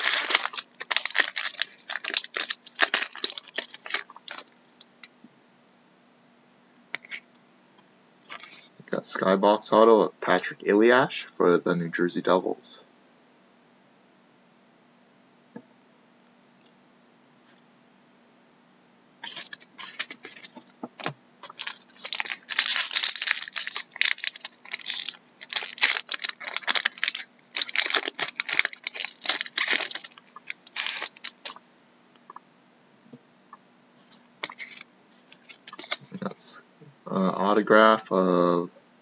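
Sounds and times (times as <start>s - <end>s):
cards rustling: 0.0s - 4.6s, 19.2s - 20.7s, 21.4s - 31.6s, 34.1s - 36.1s
foil wrapper tearing and crinkling: 0.0s - 4.6s, 19.2s - 20.7s, 21.4s - 31.6s, 34.4s - 36.1s.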